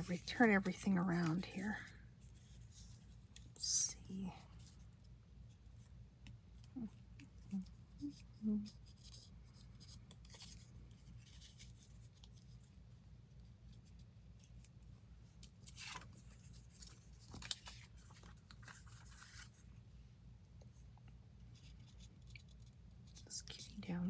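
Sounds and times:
paper rustling and scraping: 0:00.0 - 0:01.6, 0:08.7 - 0:12.8, 0:15.4 - 0:19.7
low steady hum: 0:00.0 - 0:24.0.

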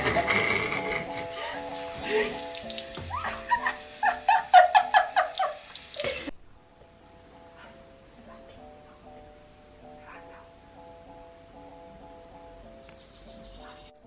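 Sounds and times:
shower spraying on hair: 0:00.0 - 0:06.3
background music: 0:00.0 - 0:14.0
person laughing: 0:03.1 - 0:06.3.

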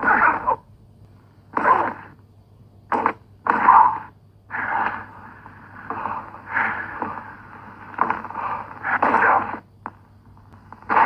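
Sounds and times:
person's voice old recording: 0:00.0 - 0:00.7, 0:01.5 - 0:02.2, 0:08.8 - 0:09.6.

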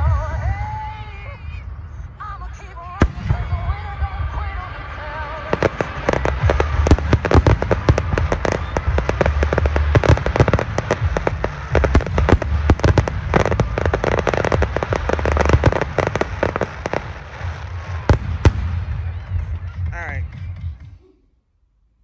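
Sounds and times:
fireworks deep booms: 0:02.9 - 0:20.0
fireworks crackling bangs: 0:02.9 - 0:20.2.

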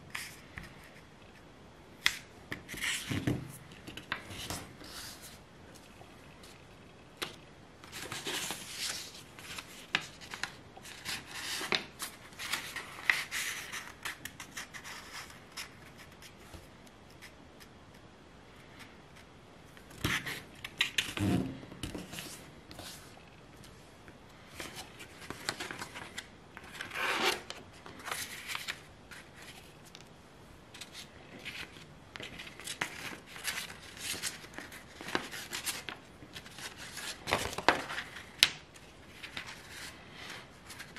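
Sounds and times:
paper rustling and crinkling: 0:07.8 - 0:16.6, 0:24.5 - 0:30.0, 0:30.7 - 0:40.9.

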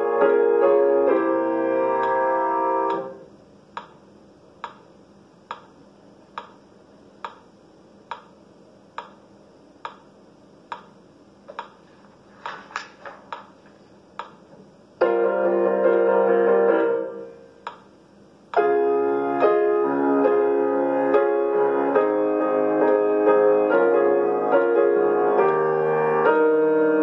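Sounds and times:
piano playing: 0:00.0 - 0:03.3, 0:15.0 - 0:17.6, 0:18.6 - 0:27.0
metronome ticking: 0:03.8 - 0:04.0, 0:04.6 - 0:06.6, 0:07.2 - 0:07.5, 0:08.1 - 0:08.4, 0:09.0 - 0:09.2, 0:09.8 - 0:10.1, 0:10.7 - 0:11.0, 0:14.2 - 0:14.4, 0:17.6 - 0:17.9.

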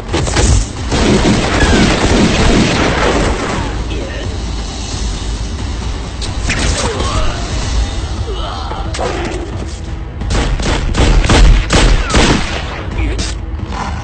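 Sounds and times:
background music: 0:00.0 - 0:14.0.

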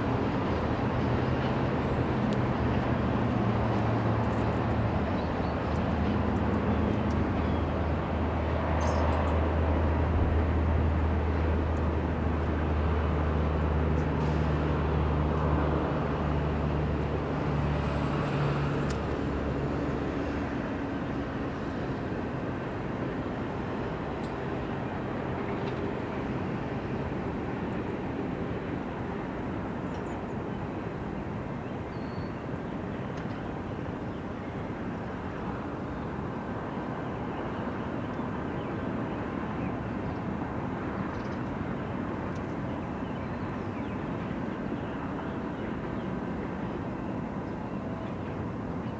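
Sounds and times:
freight train rumbling: 0:00.0 - 0:30.2.

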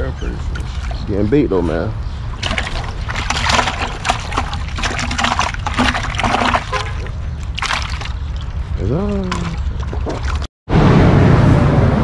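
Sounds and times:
water splashing in bucket: 0:02.4 - 0:10.5.

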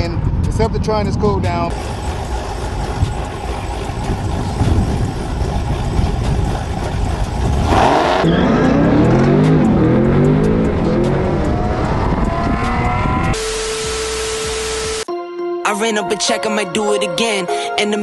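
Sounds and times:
car engine idling and revving: 0:01.5 - 0:15.1
car accelerating hard: 0:01.7 - 0:15.0.

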